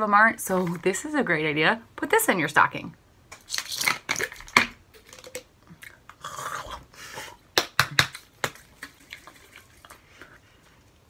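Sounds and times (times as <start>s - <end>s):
gummies rustling in bottle: 3.4s - 5.5s.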